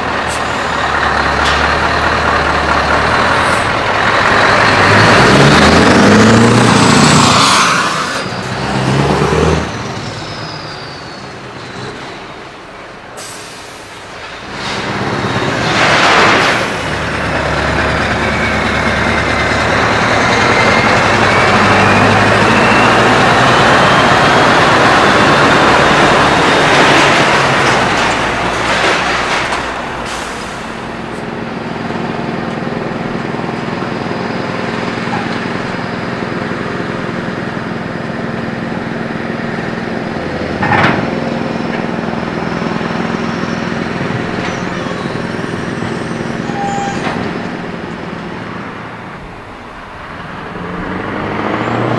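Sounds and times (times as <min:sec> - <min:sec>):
diesel truck engine: 0:00.0 - 0:51.9
air brake hisses: 0:13.2 - 0:14.0, 0:30.0 - 0:30.9
engine whistle: 0:20.4 - 0:24.9, 0:44.5 - 0:47.2.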